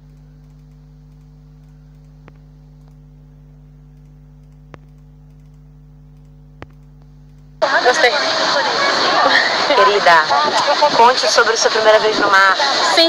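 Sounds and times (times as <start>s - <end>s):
faint clicks: 0.0s - 3.0s, 3.9s - 7.5s
low electrical hum: 0.0s - 13.0s.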